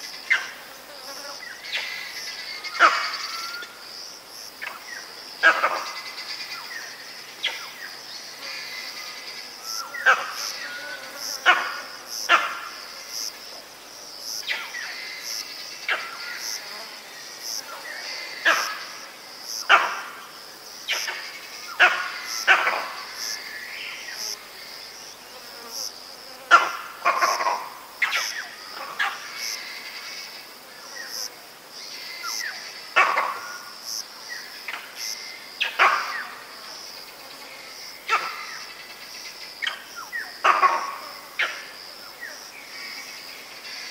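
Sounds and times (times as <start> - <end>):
monkey alarm barks: 5.4 - 5.8, 19.7 - 20.1, 21.8 - 23.0, 26.5 - 29.2, 33.0 - 33.6, 35.6 - 36.4, 40.4 - 41.6.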